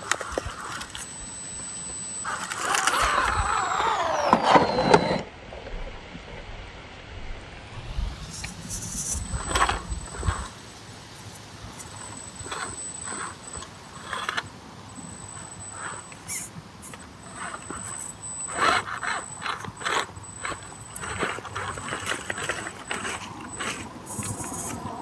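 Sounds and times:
high electric motor whine: 0.0s - 5.5s, 7.0s - 25.0s
tyres scraping and knocking on rock: 15.8s - 25.0s.

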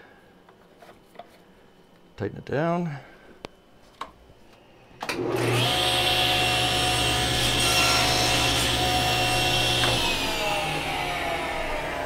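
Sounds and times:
table saw running: 5.0s - 12.0s.

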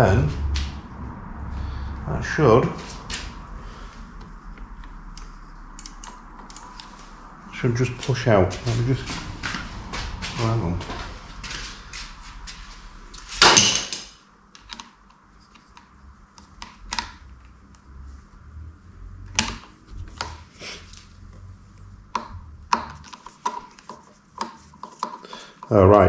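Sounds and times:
screwdriver clicking on metal: 5.1s - 6.8s
metallic scrape: 8.6s - 13.9s.

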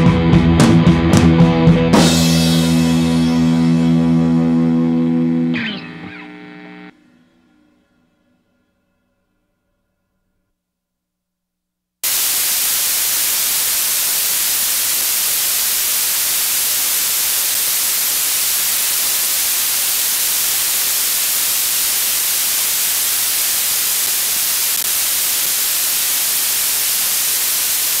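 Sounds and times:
white-noise static hiss: 4.4s - 6.9s, 12.0s - 28.0s.

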